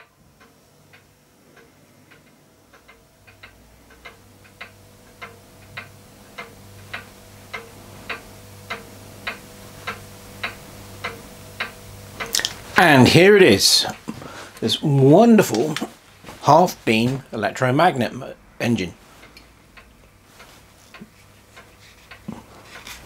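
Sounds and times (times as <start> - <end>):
mechanical ticking: 0.0 - 15.8
low steady hum: 0.0 - 23.0.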